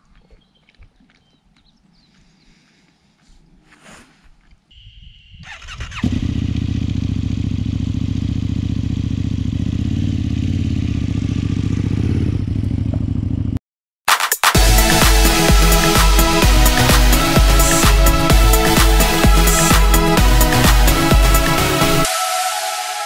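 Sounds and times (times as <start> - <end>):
motorcycle engine starting and idling: 5.4 - 13.6.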